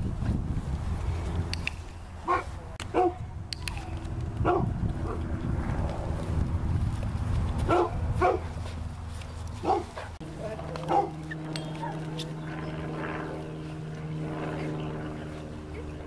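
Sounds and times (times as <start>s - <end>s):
low wind rumble: 0.0s - 16.0s
dog barking and yipping: 2.2s - 3.2s, 4.4s - 5.2s, 7.7s - 8.5s, 9.6s - 10.1s, 10.8s - 11.2s.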